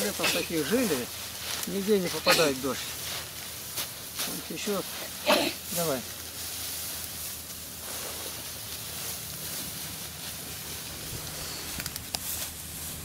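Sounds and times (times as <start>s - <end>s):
rustling of cut grass: 0.0s - 13.0s.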